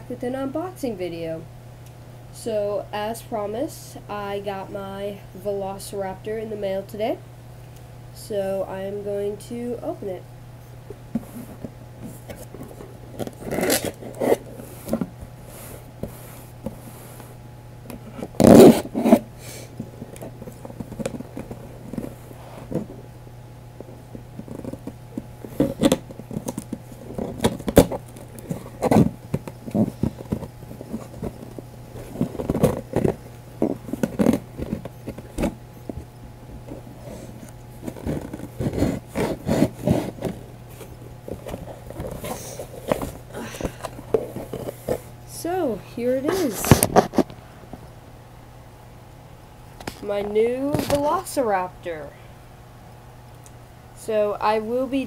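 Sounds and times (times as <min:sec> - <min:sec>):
cardboard box scraping and rustling: 0:36.8 - 0:43.3.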